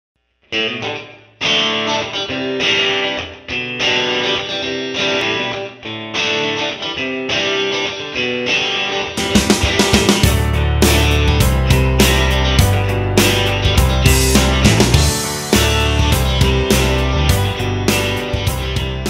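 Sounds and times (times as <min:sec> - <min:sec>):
guitar instrumental chords: 0:00.3 - 0:19.0.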